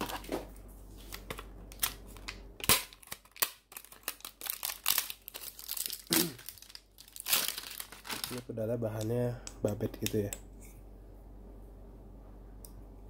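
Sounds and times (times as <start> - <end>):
plastic film crinkling: 1.0 - 9.8.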